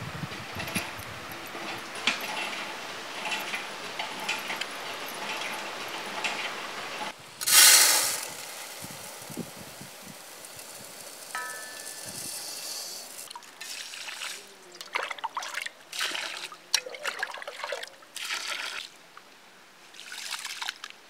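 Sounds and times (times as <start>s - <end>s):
rice pouring into metal pot: 7.4s - 13.9s.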